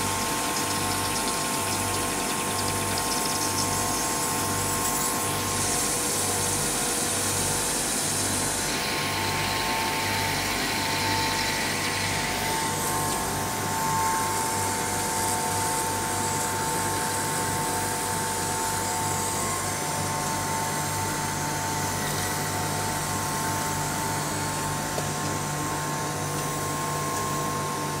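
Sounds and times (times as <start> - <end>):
machine hiss: 0.0 - 18.1
machine hum with high whine: 0.0 - 28.0.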